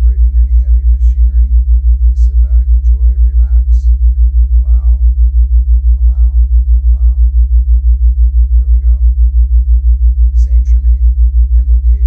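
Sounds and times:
deep low pulsing tone: 0:00.0 - 0:12.0
faint voice: 0:06.0 - 0:07.3, 0:10.4 - 0:12.0.

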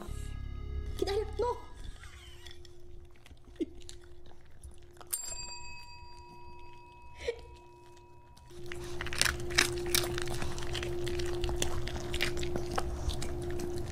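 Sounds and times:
dogs chewing hard treats: 0:01.8 - 0:13.9
desk service bell ringing: 0:05.1 - 0:08.5.

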